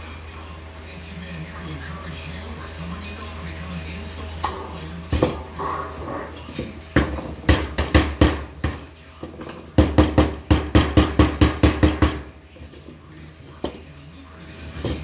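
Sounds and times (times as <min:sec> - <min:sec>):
hammer striking sheet metal: 0:09.8 - 0:12.3.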